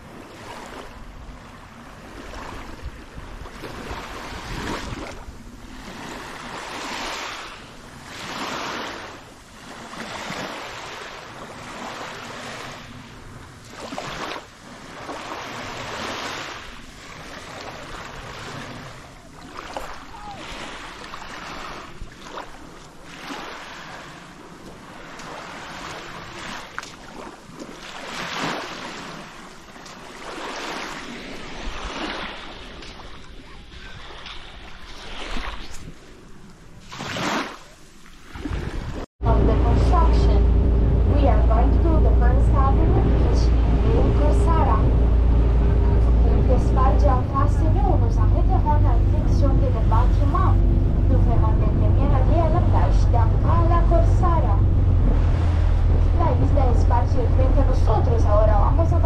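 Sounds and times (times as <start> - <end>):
small waves washing on beach: 0.0 - 59.0
wind on microphone: 38.1 - 59.0.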